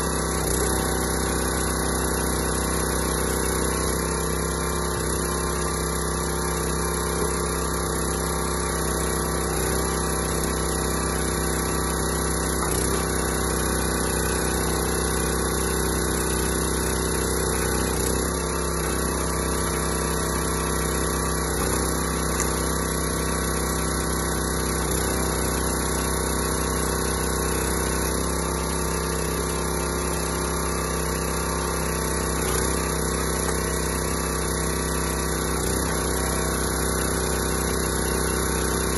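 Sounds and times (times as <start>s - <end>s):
small gas engine running: 0.0s - 38.9s.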